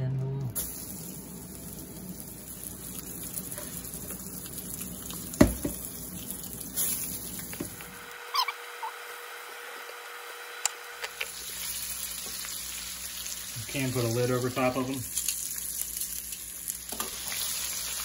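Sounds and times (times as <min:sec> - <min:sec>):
fish fillets sizzling in oil: 0:00.6 - 0:08.2, 0:11.2 - 0:18.0.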